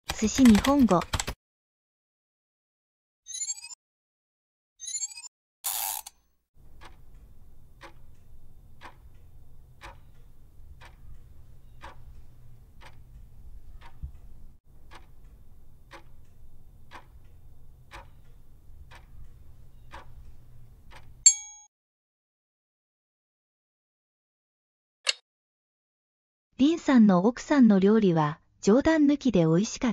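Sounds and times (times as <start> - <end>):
clock ticking: 6.6 - 21.3.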